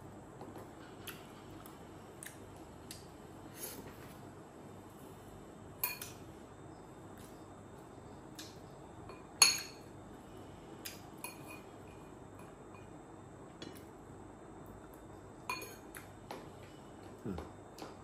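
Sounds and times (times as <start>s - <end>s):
spoon clinking on ceramic plate: 9.1s - 9.9s, 11.2s - 11.7s, 15.5s - 15.8s.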